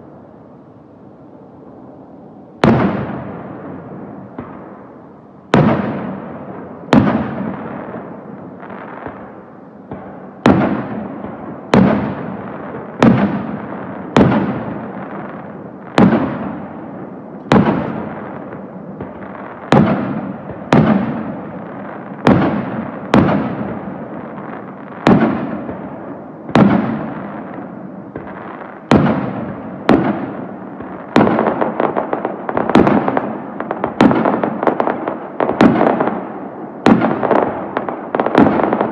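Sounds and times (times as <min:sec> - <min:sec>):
rapid firework crackling: 0:10.0 - 0:15.3, 0:17.5 - 0:25.8, 0:28.1 - 0:38.9.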